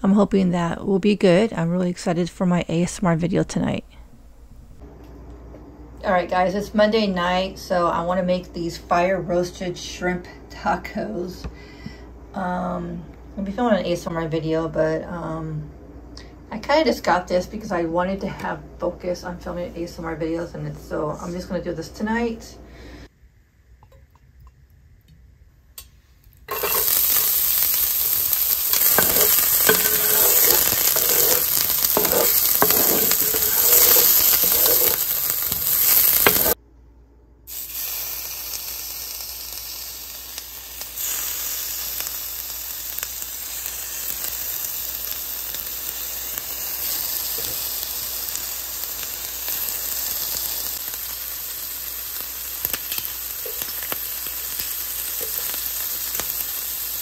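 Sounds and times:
fork stirring in skillet: 26.5 - 36.6
shrimp sizzling in skillet: 26.5 - 36.6, 37.5 - 57.0.

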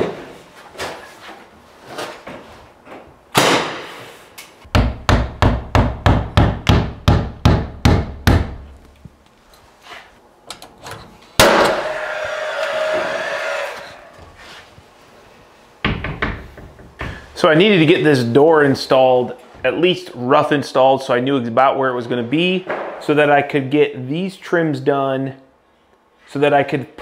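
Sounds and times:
hammer striking nails: 4.7 - 8.7.

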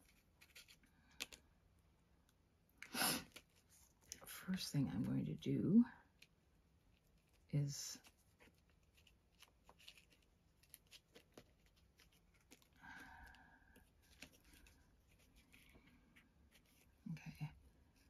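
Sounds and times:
paper rustle: 7.2 - 13.1, 13.8 - 17.0.

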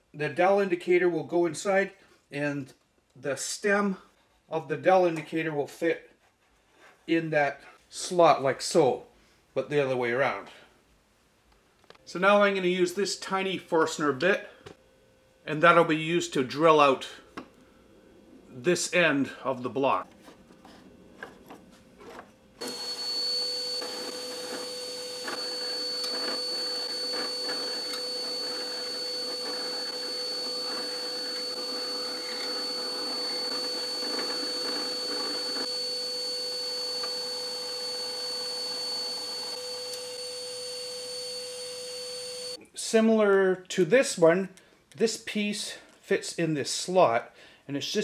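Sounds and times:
drill bit grinding into wood: 22.6 - 40.2.

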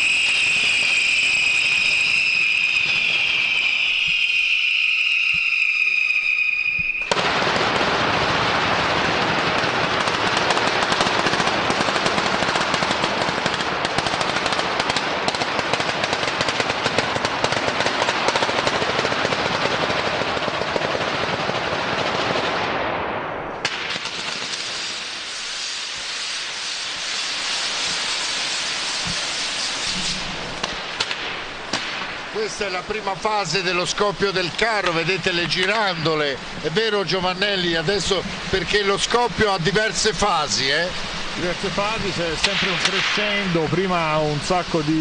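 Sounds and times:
firework pinwheels hissing: 0.0 - 7.2, 23.9 - 45.0
firecrackers banging rapidly: 0.0 - 45.0.

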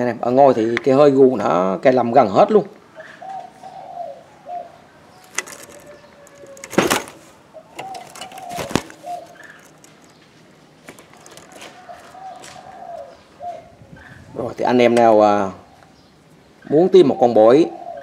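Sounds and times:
dove cooing: 2.9 - 10.2, 10.9 - 16.0, 16.6 - 18.0.

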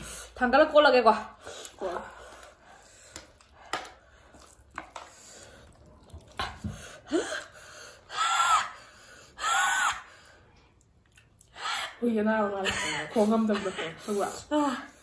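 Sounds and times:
soft chewing and mouth clicks: 1.5 - 7.6, 10.5 - 11.6.

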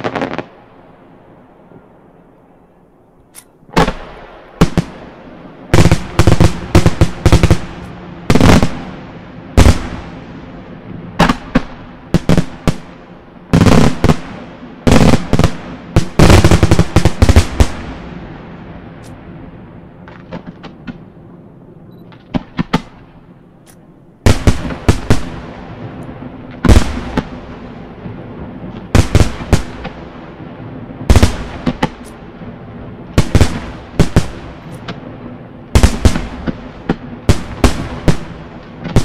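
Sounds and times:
loud firework booms: 0.0 - 0.7, 3.7 - 21.3, 22.1 - 23.4, 24.2 - 39.0
small firework pops: 19.0 - 19.2, 31.1 - 32.2, 33.2 - 35.0, 35.8 - 39.0.

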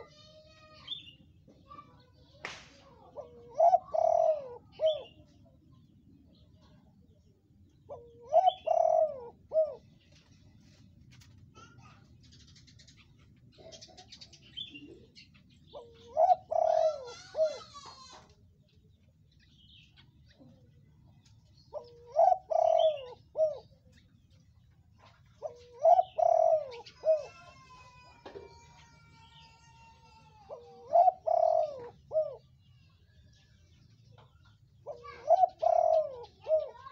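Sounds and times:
dove cooing: 3.0 - 5.4, 7.8 - 10.1, 13.6 - 18.2, 21.7 - 24.0, 25.0 - 29.2, 30.1 - 32.6, 34.8 - 36.9.

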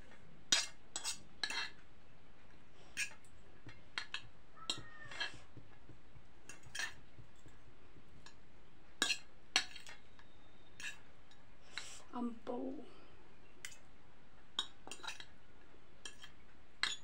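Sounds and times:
cutlery clinking on a plate: 0.5 - 1.8, 3.0 - 3.3, 3.9 - 5.5, 6.5 - 7.5, 9.0 - 10.0, 10.8 - 11.0, 14.6 - 15.3, 16.0 - 17.0.

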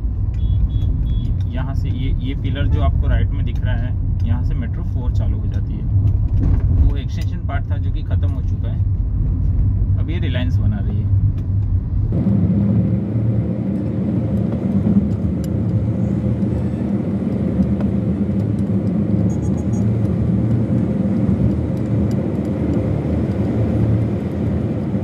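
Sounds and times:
vehicle engine hum and road rumble: 0.0 - 25.0.

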